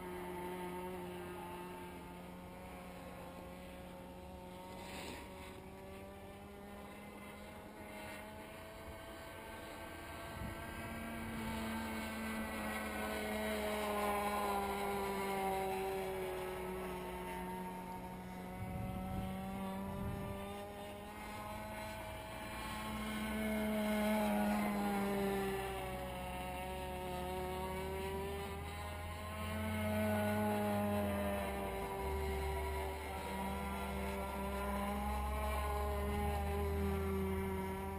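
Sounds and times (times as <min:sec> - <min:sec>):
low hum: 0:00.0 - 0:37.9
model airplane engine buzzing: 0:00.0 - 0:37.9.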